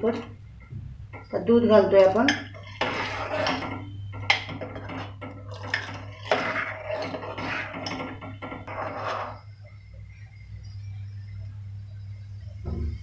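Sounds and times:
steady low hum: 0:00.0 - 0:13.0
spoon scraping metal pot: 0:01.2 - 0:09.5.

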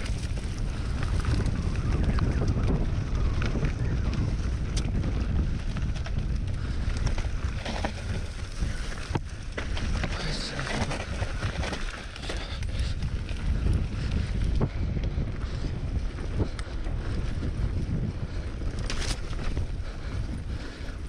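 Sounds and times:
bike rattling: 0:00.0 - 0:21.0
tyres on dirt and roots: 0:00.0 - 0:21.0
wind buffeting on microphone: 0:00.0 - 0:21.0.

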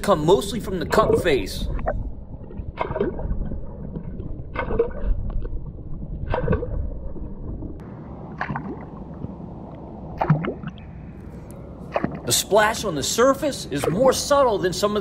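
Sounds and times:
popping cork splashing underwater: 0:00.9 - 0:10.9, 0:11.9 - 0:12.3.

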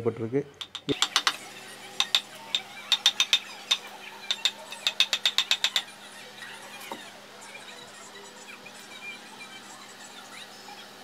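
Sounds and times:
mallet tapping wood chisel: 0:00.6 - 0:01.4, 0:02.0 - 0:05.8.

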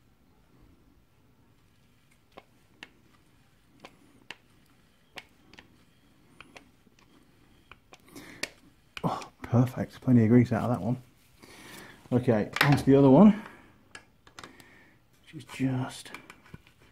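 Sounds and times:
grease gun pumping clicks: 0:02.1 - 0:09.3.

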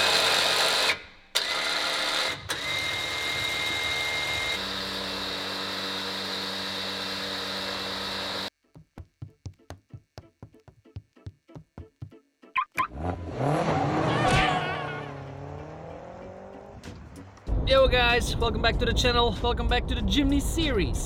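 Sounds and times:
electric winch motor whining: 0:00.0 - 0:08.5.

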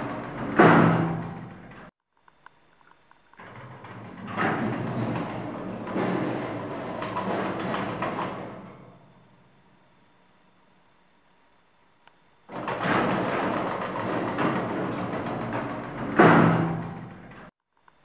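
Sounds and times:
doors banging shut: 0:00.0 - 0:01.9, 0:03.4 - 0:09.0, 0:12.5 - 0:17.5
elevator doors sliding closed: 0:00.0 - 0:01.9, 0:03.4 - 0:09.3, 0:12.5 - 0:17.5.

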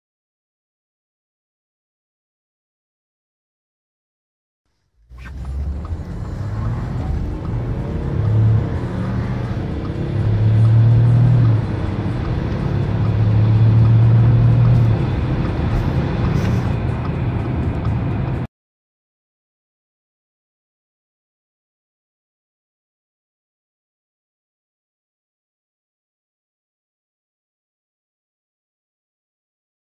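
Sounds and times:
car engine accelerating: 0:05.0 - 0:18.5.

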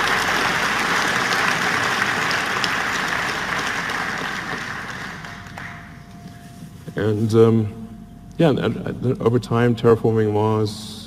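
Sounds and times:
large audience applauding: 0:00.0 - 0:06.0.

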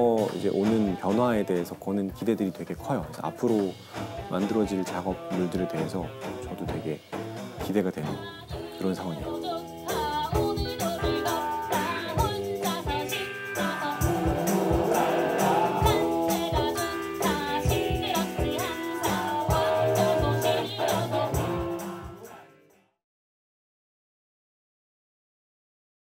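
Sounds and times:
drum kit and percussion beat: 0:00.0 - 0:22.4
woman singing: 0:00.3 - 0:07.1, 0:08.0 - 0:22.2.

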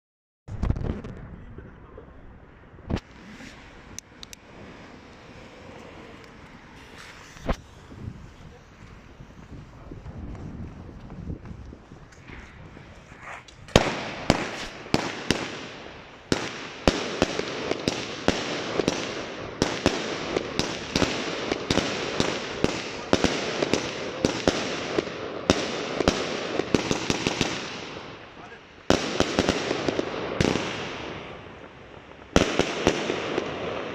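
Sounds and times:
bursting stars crackle: 0:02.9 - 0:08.5, 0:12.0 - 0:24.6
firework shots: 0:02.9 - 0:09.5, 0:12.0 - 0:33.9.

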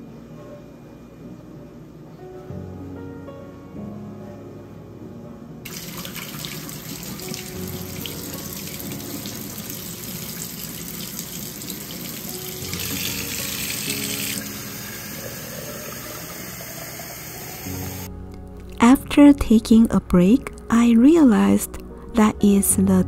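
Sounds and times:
faucet running into a metal sink: 0:05.7 - 0:18.1.

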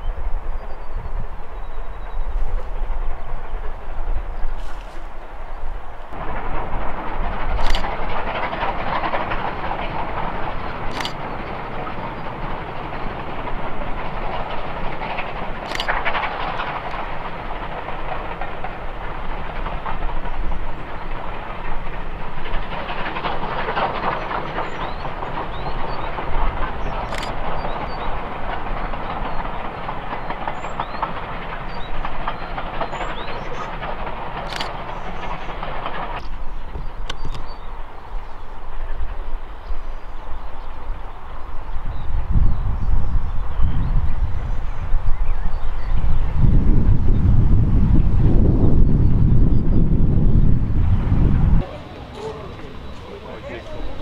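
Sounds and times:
distant steam train running: 0:00.0 - 0:54.0
sharp clicks: 0:07.5 - 0:08.1, 0:10.8 - 0:11.4, 0:15.2 - 0:17.0, 0:27.0 - 0:27.5, 0:34.4 - 0:36.4, 0:37.0 - 0:37.5.

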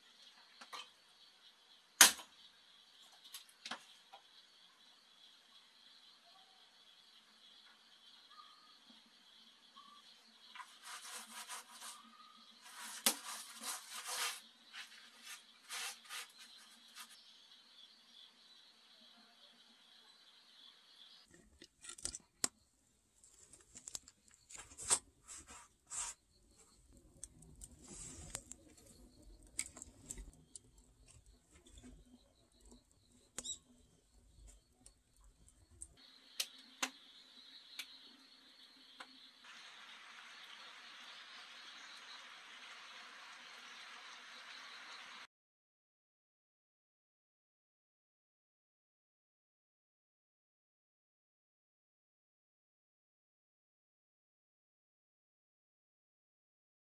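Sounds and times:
insect drone: 0:00.0 - 0:21.3, 0:23.8 - 0:45.3
wood fire crackling: 0:10.5 - 0:17.2, 0:23.2 - 0:36.6
rough scraping and rubbing: 0:10.6 - 0:17.2, 0:24.6 - 0:26.2, 0:27.6 - 0:30.4.

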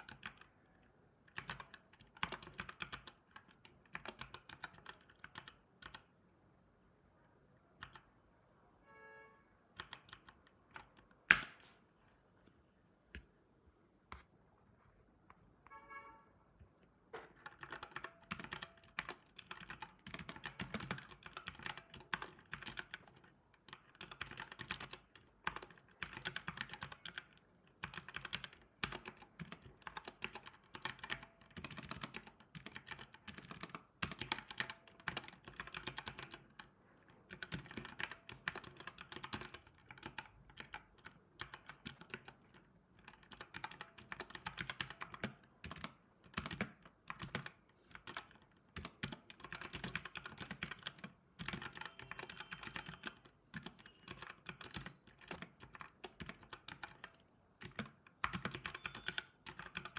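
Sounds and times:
computer keyboard key clicks: 0:37.3 - 0:59.9.

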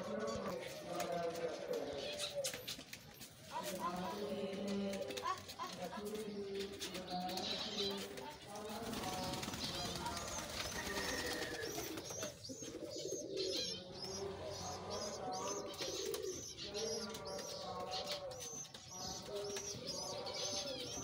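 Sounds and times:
pigeons cooing: 0:00.0 - 0:21.0
small birds chirping: 0:00.0 - 0:21.0.

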